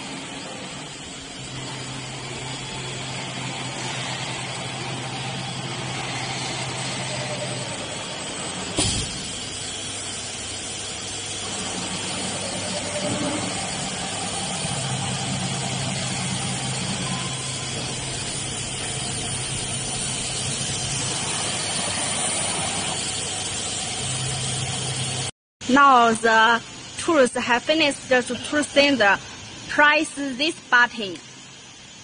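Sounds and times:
cnc router machine hum: 0.0s - 25.3s.

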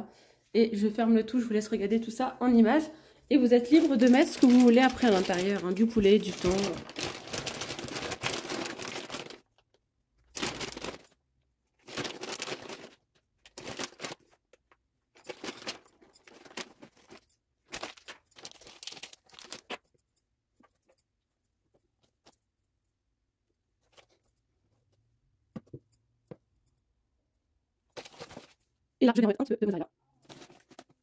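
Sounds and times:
plastic packaging crinkling: 3.5s - 11.2s, 11.8s - 14.4s, 15.2s - 19.9s.

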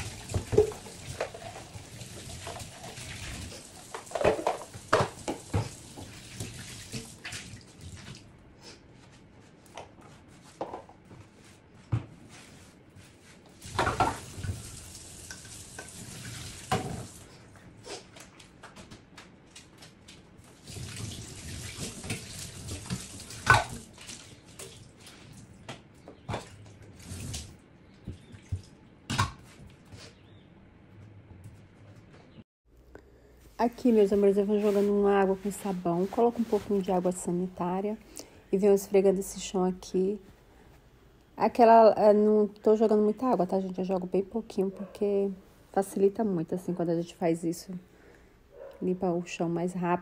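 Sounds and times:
sponge scrubbing sink: 20.5s - 25.4s, 33.9s - 37.2s.

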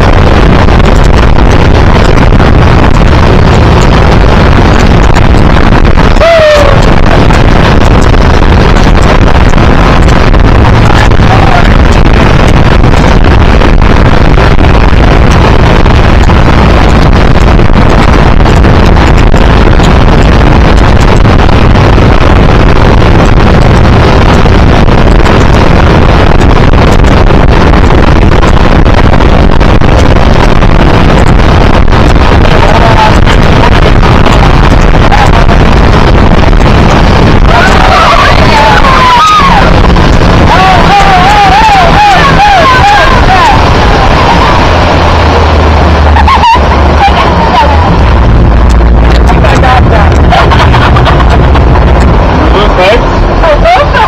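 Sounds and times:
churning boat wake: 0.0s - 54.0s
motorboat engine drone: 0.0s - 54.0s
wind buffeting microphone: 0.0s - 54.0s.

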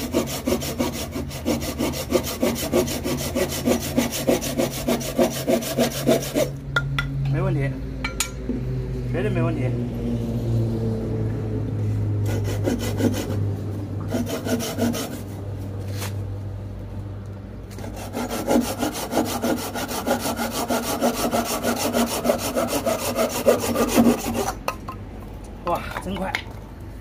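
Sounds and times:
hand saw cutting branch: 0.0s - 6.6s, 12.2s - 13.4s, 14.0s - 16.2s, 17.7s - 24.7s.

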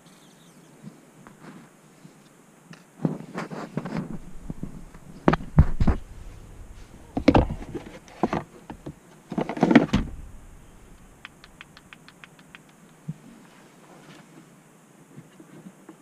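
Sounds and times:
plastic parts knocking and rattling: 4.0s - 11.8s
light ticks: 11.2s - 13.1s.

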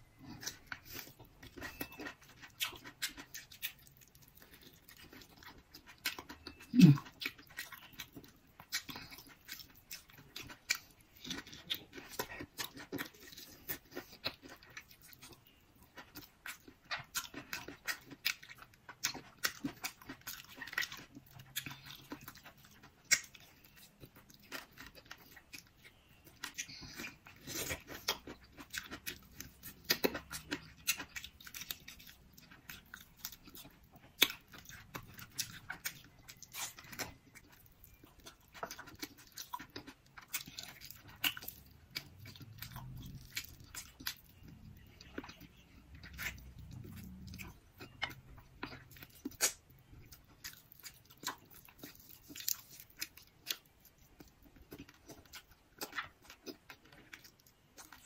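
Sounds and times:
close chewing and mouth sounds: 0.0s - 58.0s.

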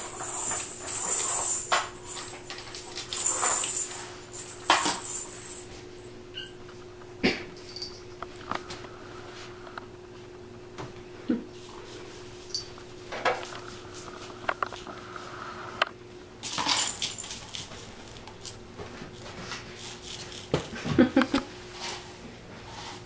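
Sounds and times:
plastic toys clicking on tile floor: 0.0s - 5.6s
plastic toys clattering: 0.0s - 5.7s, 16.4s - 20.9s.

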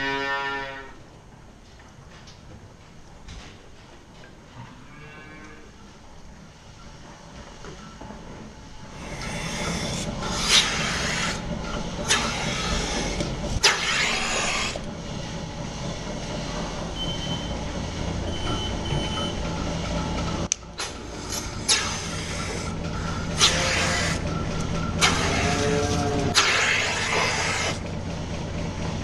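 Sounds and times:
vacuum system humming: 5.4s - 29.0s
hissing air bursts: 9.2s - 11.4s.

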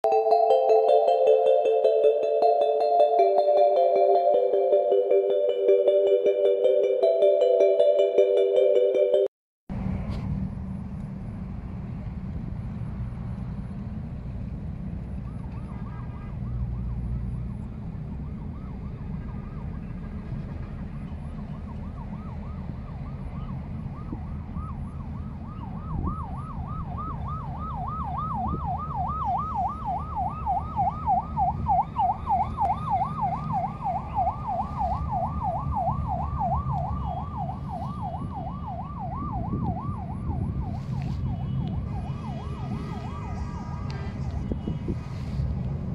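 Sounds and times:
siren warbling: 0.0s - 9.3s, 41.8s - 44.9s.

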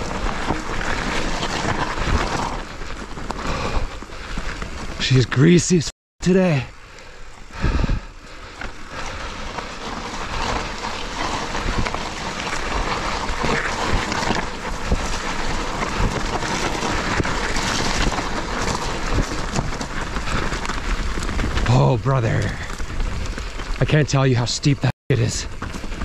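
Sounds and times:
bike clattering and rattling: 0.0s - 5.2s, 7.0s - 24.6s, 25.2s - 26.0s
bike tyre noise: 0.0s - 26.0s
wind buffeting microphone: 7.5s - 8.2s.

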